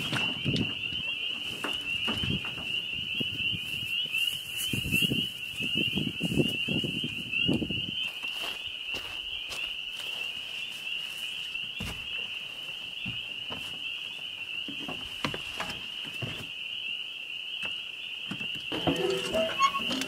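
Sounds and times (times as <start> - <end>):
frogs chorus: 0.0 - 20.0.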